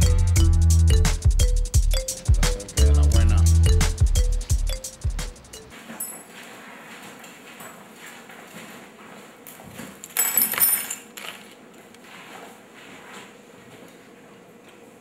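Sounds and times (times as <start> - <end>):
keys jingling: 10.0 - 11.4.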